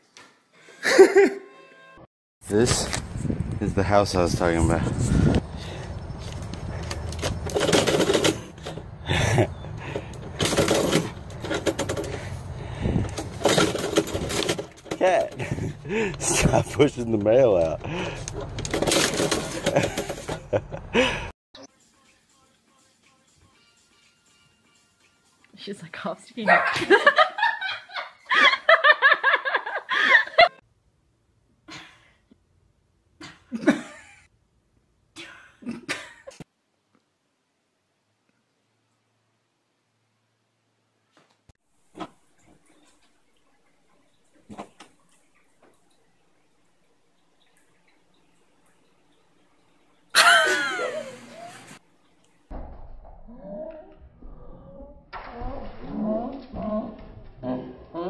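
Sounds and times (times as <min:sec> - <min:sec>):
quiet laughter: 0:50.2 - 0:51.8.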